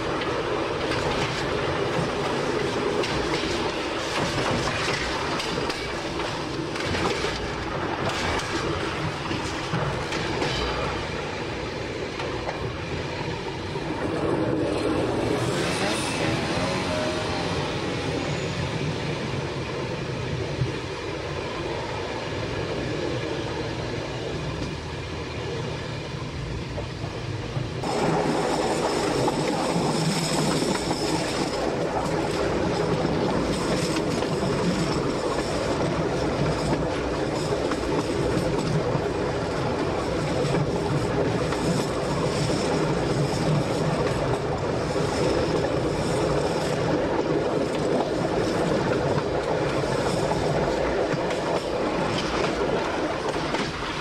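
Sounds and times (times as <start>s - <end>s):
wheels clicking over rail joints: 0.0s - 11.1s, 27.1s - 54.0s
train running noise: 0.0s - 54.0s.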